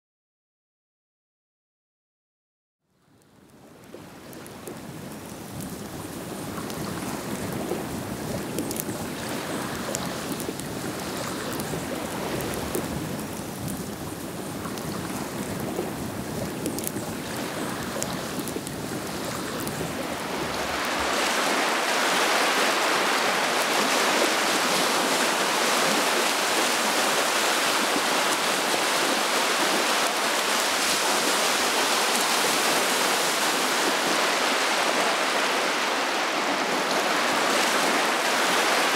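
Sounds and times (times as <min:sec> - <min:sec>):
small waves on water: 0:03.6 - 0:38.9
wind rushing: 0:19.1 - 0:22.4.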